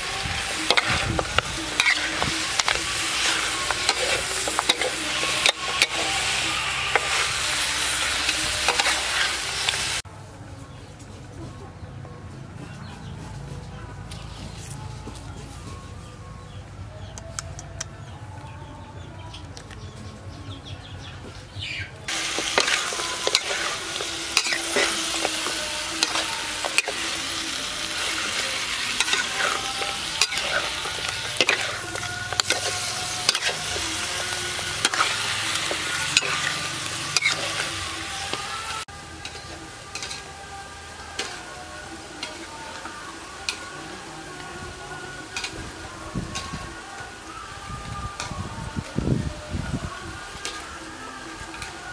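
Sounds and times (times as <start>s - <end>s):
food sizzling in a wok: 0.0s - 10.0s, 22.1s - 51.9s
metal utensil scraping pan: 0.1s - 10.0s, 22.1s - 40.3s.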